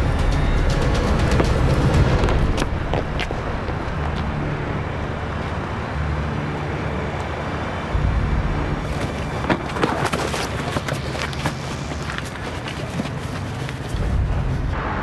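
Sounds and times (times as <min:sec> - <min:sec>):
low steady rumble: 0:00.0 - 0:12.2, 0:13.9 - 0:15.0
knocks and scrapes of scuffle: 0:09.0 - 0:14.1.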